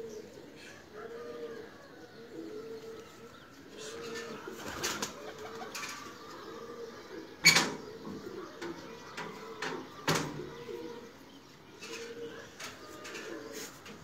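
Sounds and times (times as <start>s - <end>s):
pigeons cooing: 0.0s - 14.0s
wings flapping: 4.2s - 6.1s.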